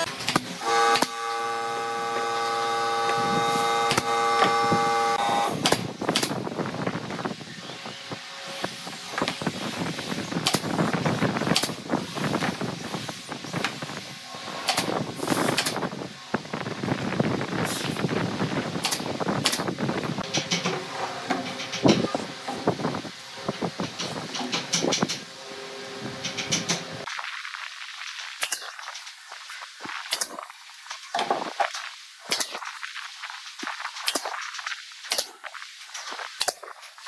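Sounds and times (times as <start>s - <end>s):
machine whine: 0.0s - 5.9s
brad nailer firing: 0.0s - 6.4s.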